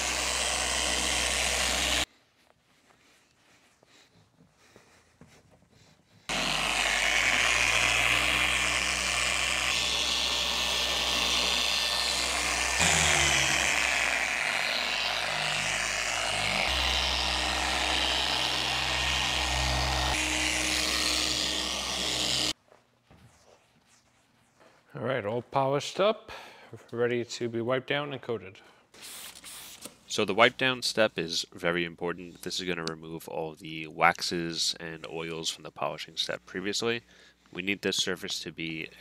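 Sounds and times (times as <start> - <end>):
machine polisher motor hum: 0.0 - 2.1, 6.3 - 22.6
polishing pad hiss: 6.3 - 22.6.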